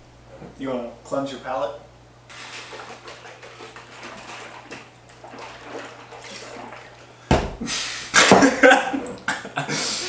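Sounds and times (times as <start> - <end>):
drinking water from jar: 2.3 - 7.2.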